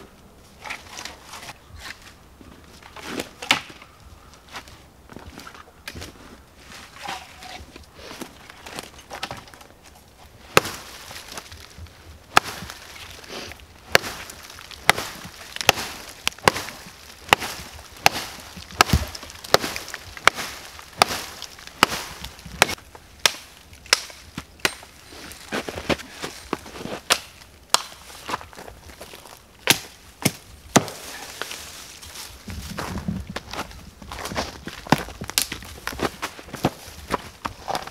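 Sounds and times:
axe chopping wood: 3.0 - 3.9, 10.5 - 11.6, 12.3 - 13.2, 13.8 - 24.9, 26.8 - 28.5, 29.6 - 31.4.

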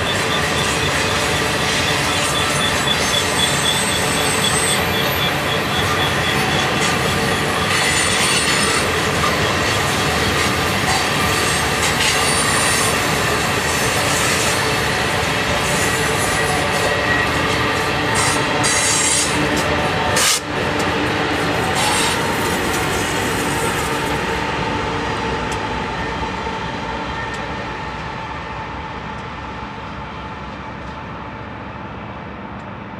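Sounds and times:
steel wheels screeching: 0.0 - 20.5, 21.5 - 24.1
diesel locomotives running past: 0.0 - 32.9.

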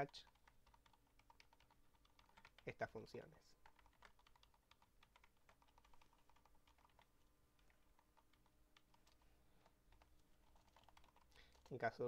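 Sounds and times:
typing on computer keyboard: 0.0 - 2.8, 3.6 - 11.8.

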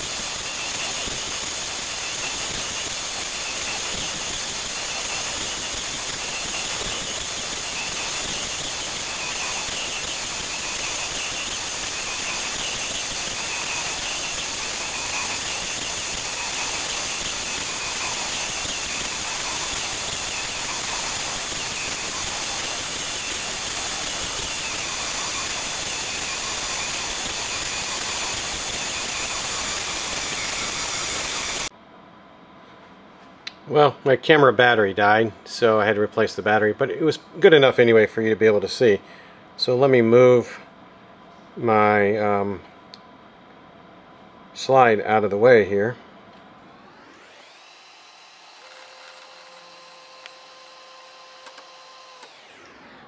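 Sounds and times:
lathe high whine over hiss: 0.0 - 31.7, 46.7 - 53.0.

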